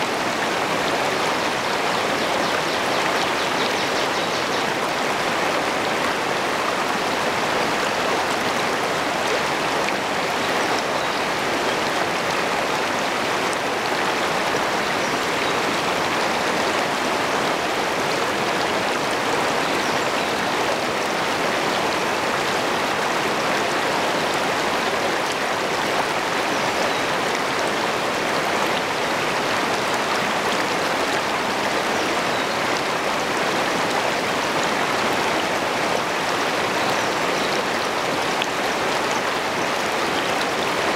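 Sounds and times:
water rushing over rocks: 0:00.0 - 0:40.9.

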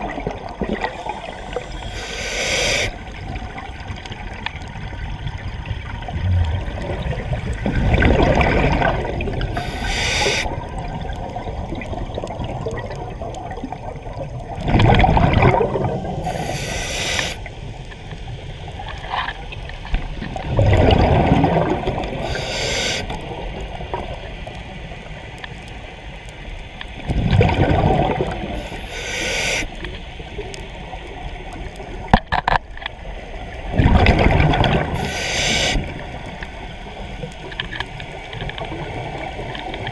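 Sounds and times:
exhaled regulator bubbles: 0:00.0 - 0:03.7, 0:06.0 - 0:17.4, 0:20.4 - 0:23.4, 0:27.0 - 0:29.7, 0:33.7 - 0:36.0
regulator inhaling hiss: 0:00.8 - 0:03.2, 0:09.4 - 0:10.6, 0:16.2 - 0:17.9, 0:22.1 - 0:23.3, 0:28.6 - 0:30.4, 0:34.9 - 0:36.1.

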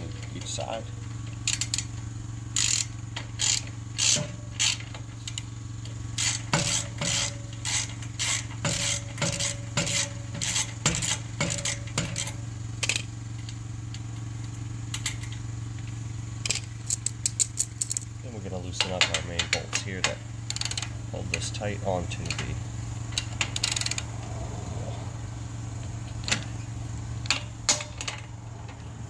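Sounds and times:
metal bolts clicking and scraping: 0:00.0 - 0:24.3, 0:26.0 - 0:29.0.

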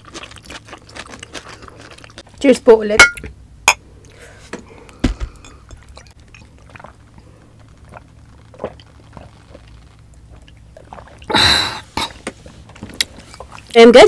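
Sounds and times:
sips and swallows: 0:05.8 - 0:12.3.

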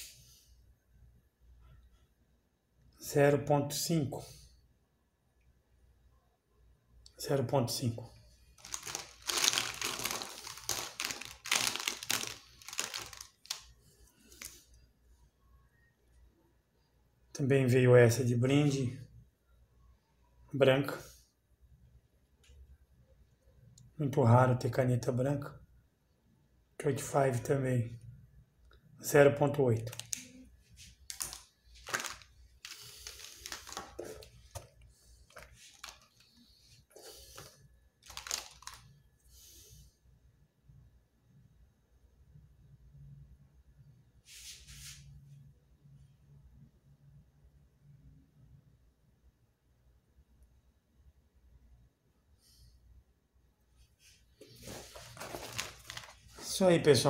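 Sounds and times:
plastic marker pens clattering: 0:08.6 - 0:13.7, 0:29.8 - 0:30.4, 0:31.1 - 0:36.4, 0:37.3 - 0:38.9, 0:54.6 - 0:56.4.

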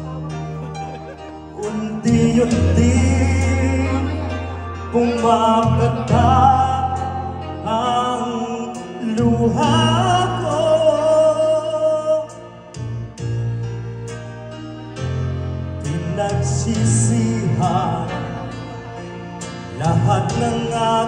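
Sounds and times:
amplified backing track: 0:00.0 - 0:21.0
man singing into microphone: 0:01.5 - 0:13.0, 0:15.8 - 0:21.0.

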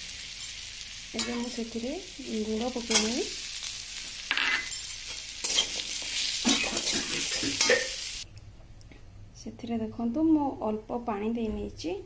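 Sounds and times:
fruit sizzling in oil: 0:00.0 - 0:08.3
metal spatula scraping metal pan: 0:04.5 - 0:08.0.

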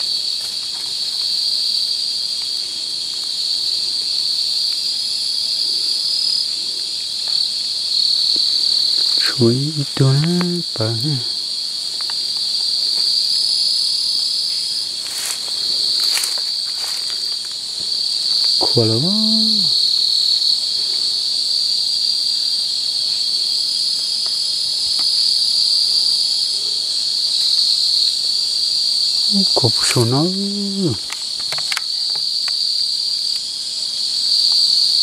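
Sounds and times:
night insects trilling: 0:00.0 - 0:35.0
man saying a word: 0:09.2 - 0:11.3, 0:18.6 - 0:19.8, 0:29.3 - 0:31.0.

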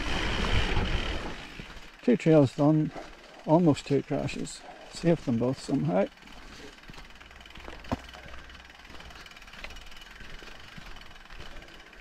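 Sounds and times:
bike freehub ticking: 0:00.0 - 0:12.0.

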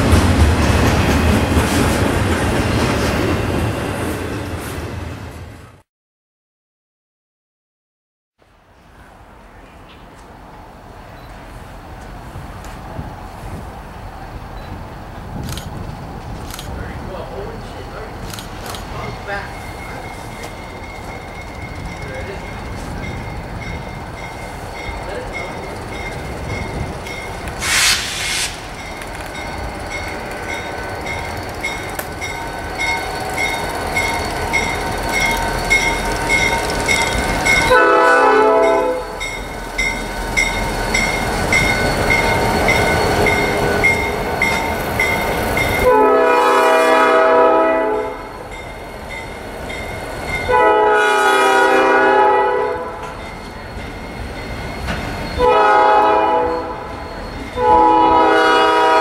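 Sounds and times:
train wheels rolling over rails: 0:00.0 - 0:05.4, 0:11.3 - 0:37.9, 0:53.0 - 0:59.0
locomotive bell ringing: 0:18.9 - 0:27.5, 0:28.7 - 0:46.3, 0:47.9 - 0:51.0, 0:52.6 - 0:59.0
train air horn blasts: 0:27.6 - 0:28.7, 0:37.7 - 0:39.2, 0:45.8 - 0:48.3, 0:50.5 - 0:53.2, 0:55.4 - 0:56.9, 0:57.6 - 0:59.0.

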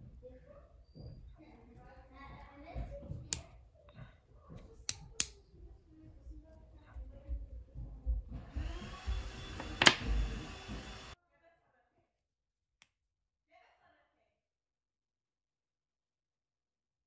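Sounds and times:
magnets clicking together: 0:04.8 - 0:05.4.

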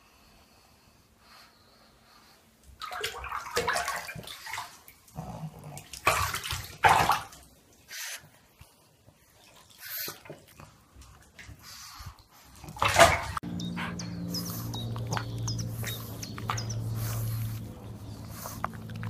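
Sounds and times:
small dog noises: 0:09.3 - 0:19.0
steady low hum: 0:12.1 - 0:19.0.

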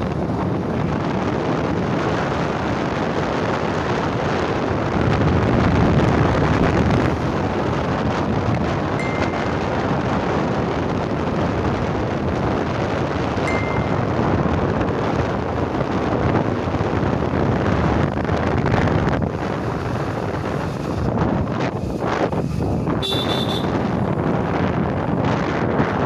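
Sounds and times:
road noise: 0:00.0 - 0:26.0
wind rush on microphone: 0:00.0 - 0:26.0
short high beep: 0:09.0 - 0:09.6.

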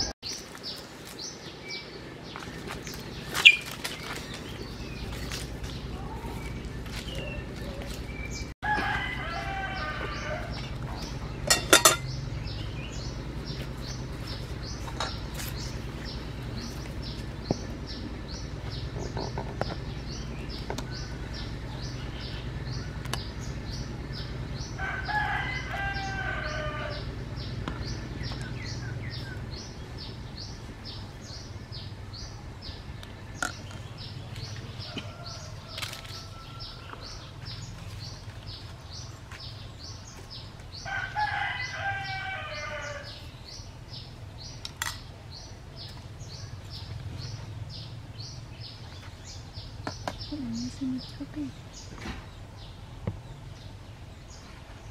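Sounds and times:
chickens calling: 0:00.0 - 0:44.5
metal pot lid clanking: 0:11.5 - 0:12.1.

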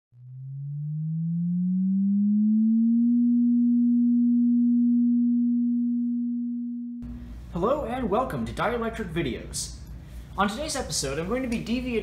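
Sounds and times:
electronic tone gliding up: 0:00.1 - 0:07.0.

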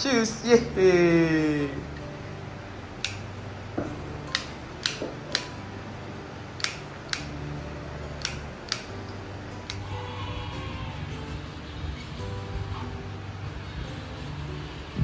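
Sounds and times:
low steady hum: 0:00.0 - 0:15.0
sharp clicks: 0:03.0 - 0:03.2, 0:04.3 - 0:05.5, 0:06.6 - 0:07.4, 0:08.2 - 0:09.0.

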